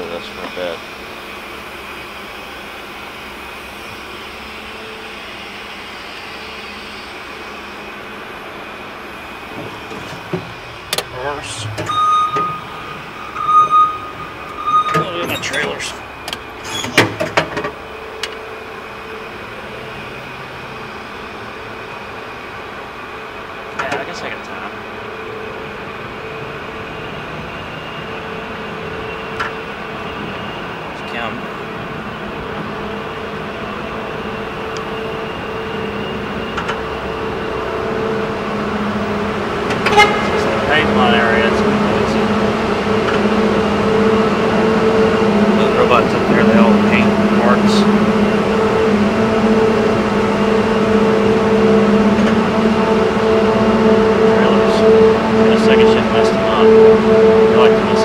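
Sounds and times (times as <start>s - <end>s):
factory machinery drone: 0.0s - 58.0s
faint humming tone: 9.8s - 15.8s
short sharp squeak: 11.0s - 15.9s, 16.6s - 17.2s, 39.8s - 40.4s.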